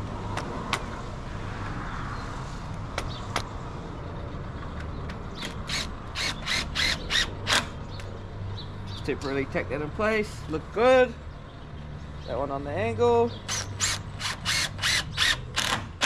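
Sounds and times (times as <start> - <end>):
power drill driving screw into wood: 5.4 - 7.7, 13.5 - 16.0.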